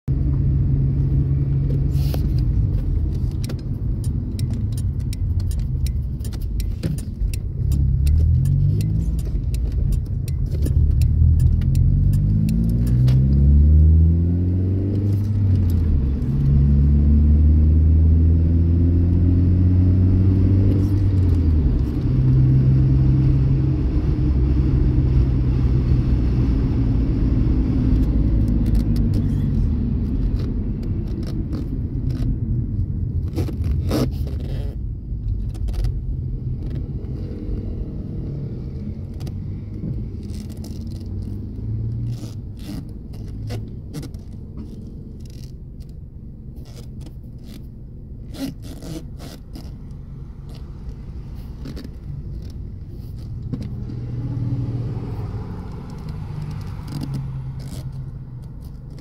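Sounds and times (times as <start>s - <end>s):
car engine accelerating: 0.1s - 46.0s, 46.6s - 59.0s
light rattling clicks: 1.7s - 13.2s.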